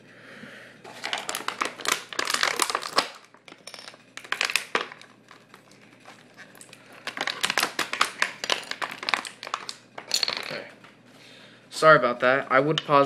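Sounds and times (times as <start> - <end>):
plastic packaging crinkling: 0.8 - 10.6.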